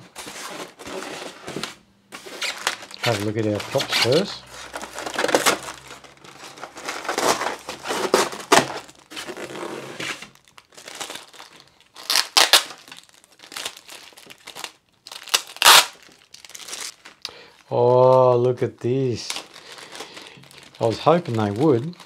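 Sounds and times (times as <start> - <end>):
plastic bags crinkling: 2.2 - 22.0.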